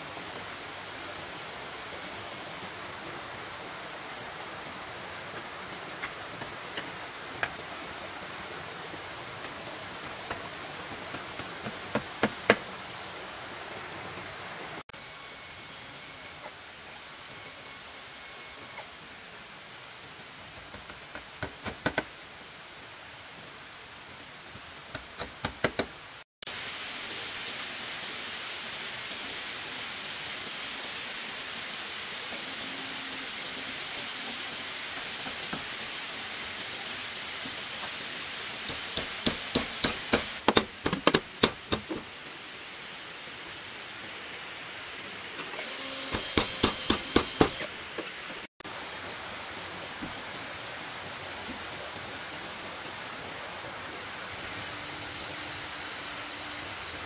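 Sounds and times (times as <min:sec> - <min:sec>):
steady hiss: 0:00.0 - 0:57.0
hand tool striking wood: 0:38.7 - 0:42.0, 0:46.1 - 0:47.7.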